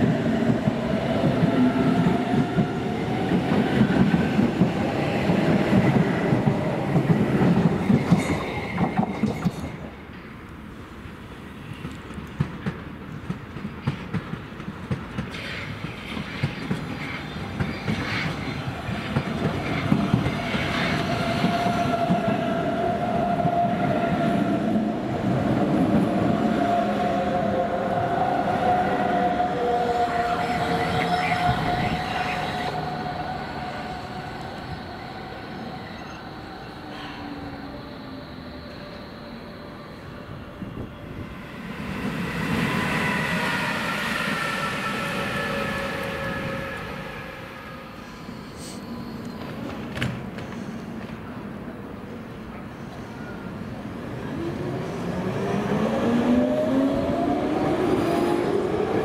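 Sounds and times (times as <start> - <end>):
electric train passing: 0.0 - 13.6, 14.2 - 59.0
whine sliding down in pitch: 38.4 - 49.1.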